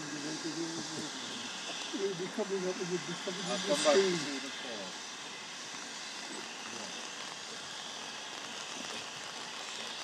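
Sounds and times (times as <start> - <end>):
steam hissing from locomotives: 0.0 - 10.0.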